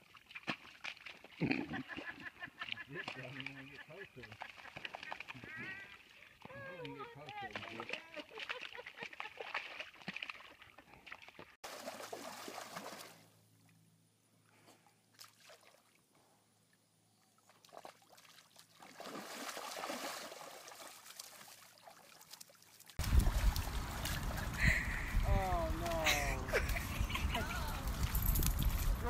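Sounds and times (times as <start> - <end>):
mud sloshing and splashing: 0.0 - 1.4, 4.2 - 13.3, 15.1 - 16.0, 17.5 - 29.0.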